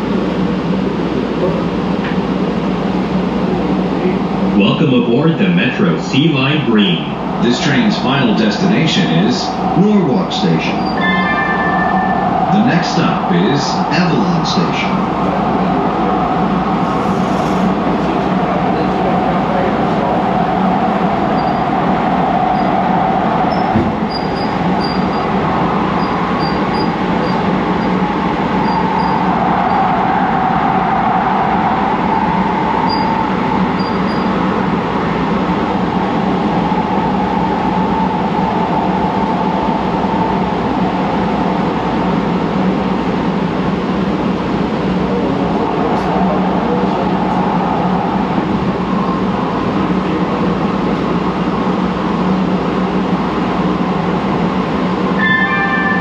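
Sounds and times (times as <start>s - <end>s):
wheels rumbling on rails: 0.0s - 56.0s
wavering tone: 9.4s - 15.8s, 23.5s - 41.5s, 55.1s - 56.0s.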